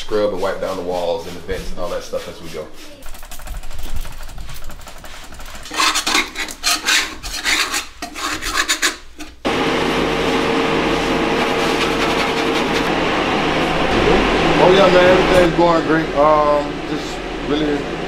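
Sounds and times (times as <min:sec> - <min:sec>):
scrubbing and scraping floor: 0:00.0 - 0:13.0
steady mechanical hum: 0:00.0 - 0:18.0.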